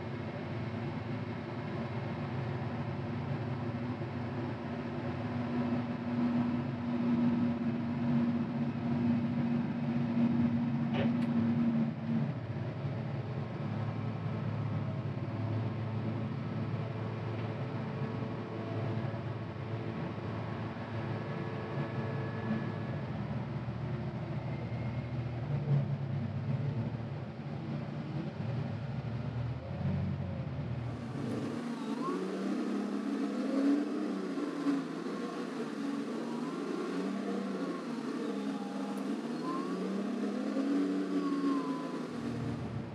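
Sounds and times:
droning engine tone: 0:00.0 - 0:42.9
diesel engine running: 0:28.5 - 0:42.9.

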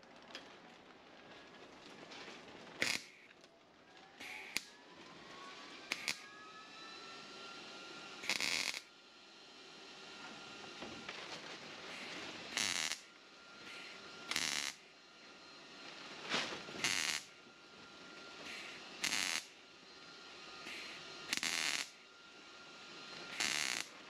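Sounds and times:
welding arc crackling: 0:02.7 - 0:03.4, 0:04.2 - 0:04.7, 0:05.9 - 0:06.3, 0:08.2 - 0:08.9, 0:11.9 - 0:14.9, 0:16.4 - 0:17.4, 0:18.4 - 0:19.5, 0:20.6 - 0:22.0, 0:23.2 - 0:24.0.

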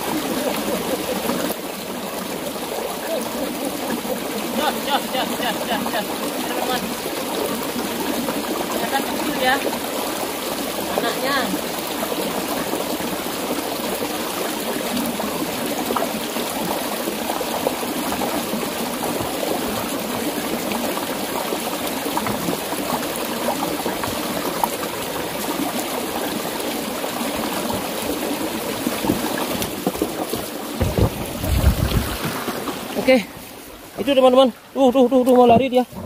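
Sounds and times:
stream running over stones: 0:00.0 - 0:36.0
low thumps: 0:29.9 - 0:32.6.

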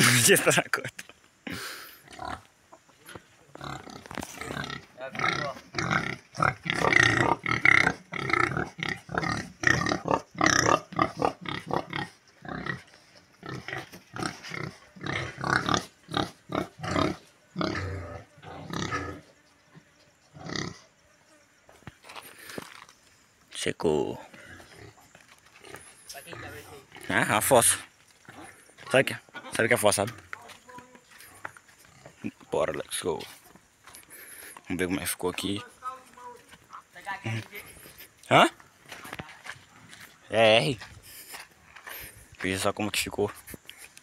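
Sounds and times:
pigs grunting: 0:01.6 - 0:20.9, 0:24.1 - 0:30.4, 0:31.1 - 0:34.7.

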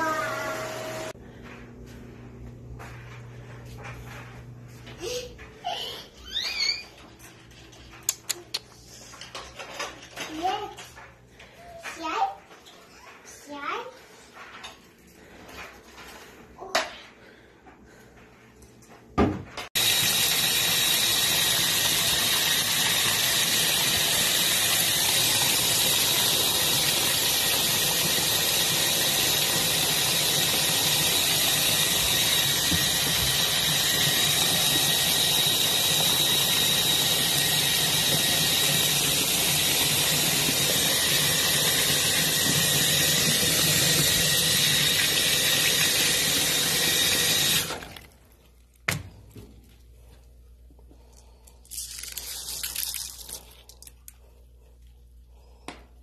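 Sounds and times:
water spraying into washing machine: 0:19.8 - 0:48.2.

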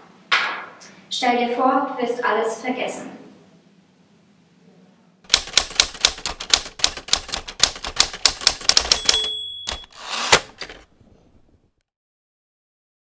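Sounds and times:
typewriter carriage return: 0:05.3 - 0:10.9
typewriter keys clacking: 0:05.3 - 0:10.9
typewriter bell ding: 0:08.4 - 0:10.0.

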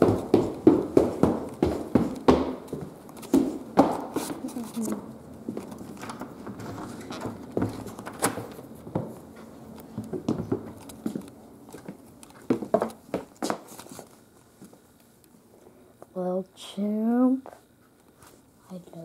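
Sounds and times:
footsteps: 0:00.0 - 0:14.8.

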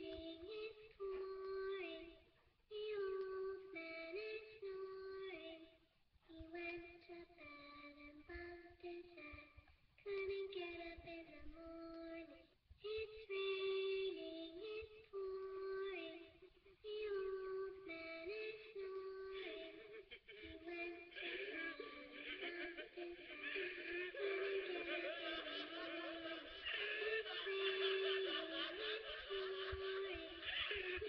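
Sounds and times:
high voice singing: 0:20.7 - 0:31.0.

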